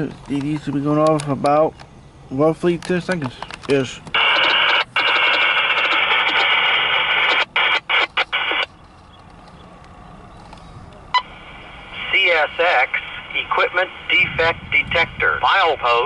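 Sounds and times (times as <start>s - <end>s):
radio static hiss: 3.7s - 8.7s, 11.0s - 16.0s.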